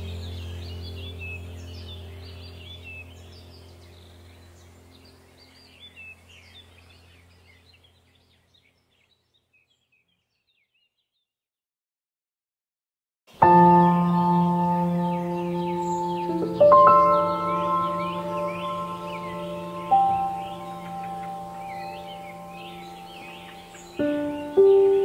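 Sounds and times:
low steady drone: 0:00.0 - 0:08.0, 0:13.4 - 0:25.0
birds chirping: 0:00.0 - 0:11.3, 0:13.3 - 0:25.0.

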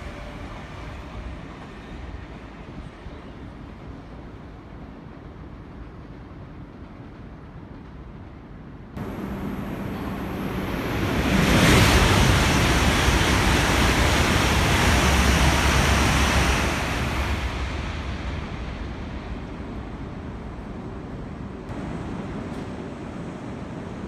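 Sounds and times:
high-speed train passing: 0:00.0 - 0:24.0
rush of air and wheel noise: 0:09.0 - 0:24.0.

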